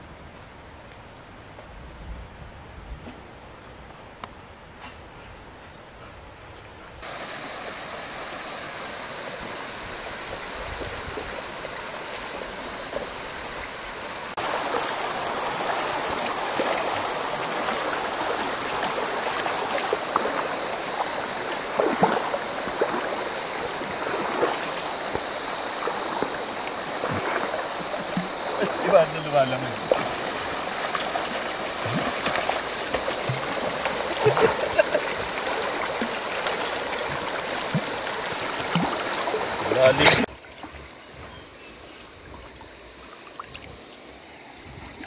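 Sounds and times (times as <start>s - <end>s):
river water rushing over stones: 7.0s - 41.1s
splashes of wading: 7.0s - 41.4s.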